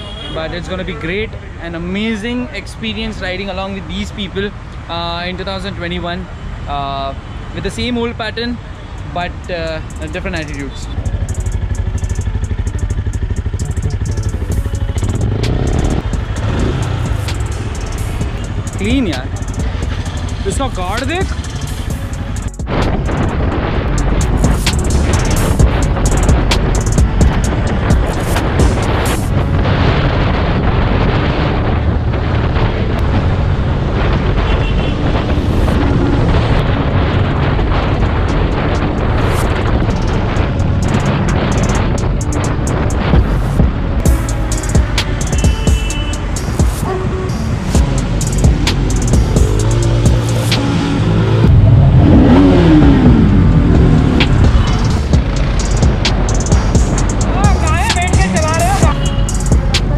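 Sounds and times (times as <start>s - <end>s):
motorcycle engine running: 9.8s - 29.8s, 30.7s - 59.9s
motorcycle engine idling: 9.9s - 23.2s
wind rumble on microphone: 10.8s - 59.9s.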